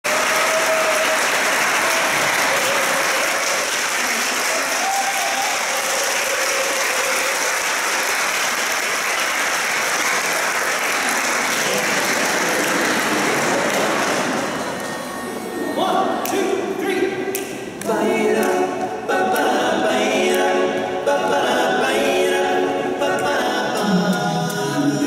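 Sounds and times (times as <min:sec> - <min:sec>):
audience clapping: 0:00.0 - 0:15.0
brief cheers: 0:00.1 - 0:03.6, 0:04.4 - 0:07.5.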